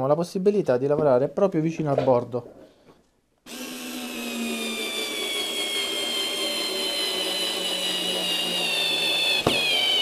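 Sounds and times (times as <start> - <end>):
cordless screwdriver whine: 3.5 - 10.0.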